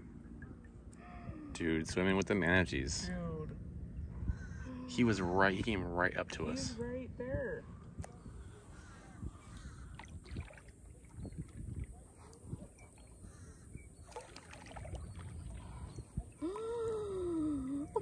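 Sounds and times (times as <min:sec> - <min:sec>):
steady low rumble: 0:00.0 - 0:14.0, 0:14.8 - 0:18.0
paddle strokes splashing and dripping: 0:09.4 - 0:13.4, 0:14.0 - 0:17.0.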